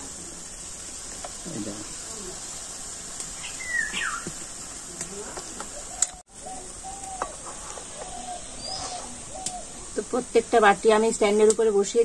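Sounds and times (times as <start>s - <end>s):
water boiling: 0.0s - 12.0s
bird calling: 3.3s - 4.4s, 5.1s - 10.1s.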